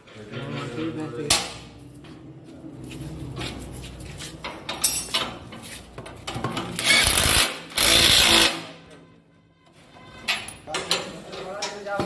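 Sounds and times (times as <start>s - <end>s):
metal clanking and knocking: 4.3s - 6.9s, 9.8s - 12.0s.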